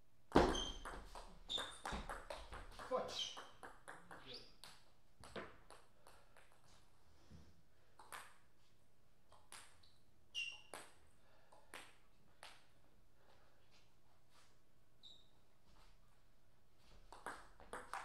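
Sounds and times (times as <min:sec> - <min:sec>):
table tennis ball bouncing: 0:00.3 - 0:06.6, 0:08.0 - 0:08.4, 0:17.1 - 0:18.0.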